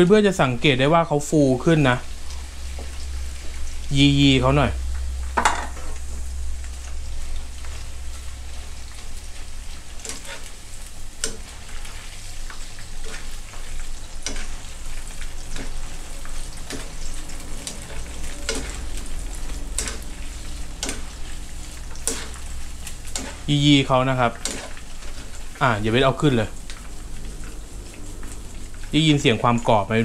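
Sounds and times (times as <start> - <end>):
batter deep-frying sizzle: 0.0 - 30.0
wire strainer scraping a pan: 9.8 - 10.6, 15.4 - 25.6.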